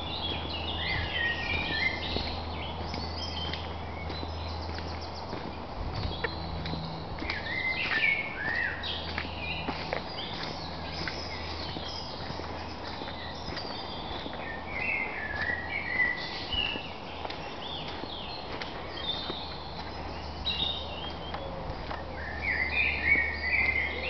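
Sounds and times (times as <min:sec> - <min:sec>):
birds warbling: 0:00.0 - 0:24.0
footsteps on dirt: 0:00.0 - 0:24.0.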